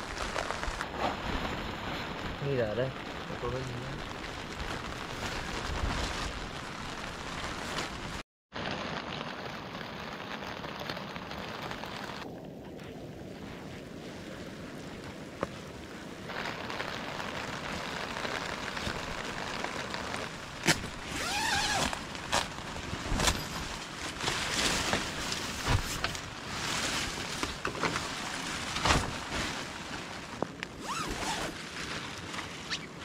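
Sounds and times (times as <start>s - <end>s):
plastic and nylon fabric crinkling: 0.0s - 9.5s, 16.3s - 33.0s
steady rain: 0.0s - 33.0s.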